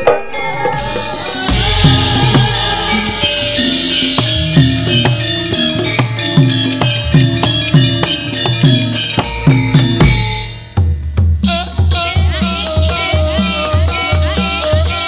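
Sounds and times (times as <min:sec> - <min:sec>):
hand drum strokes: 0:00.6 - 0:10.9
ringing metallic keyed instruments: 0:00.7 - 0:10.7.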